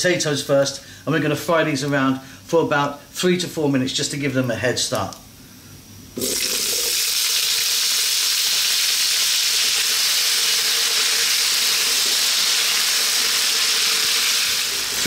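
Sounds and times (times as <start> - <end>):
potatoes sizzling in hot oil: 6.2 - 15.0.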